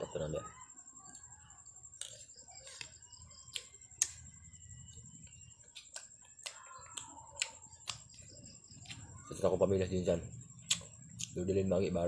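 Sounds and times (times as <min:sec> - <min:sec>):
high-pitched whine: 0:00.0 - 0:01.8
clicks and taps of eating: 0:04.9 - 0:09.1.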